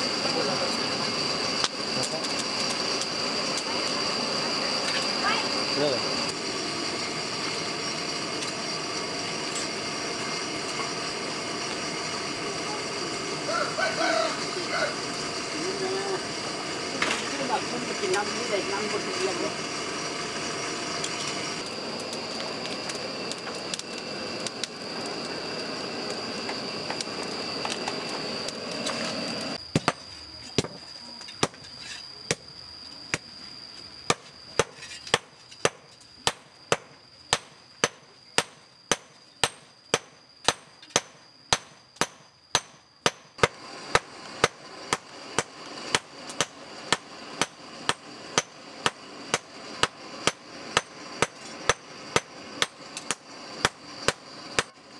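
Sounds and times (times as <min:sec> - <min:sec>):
hammers striking metal on anvil: 0:34.1 - 0:54.7.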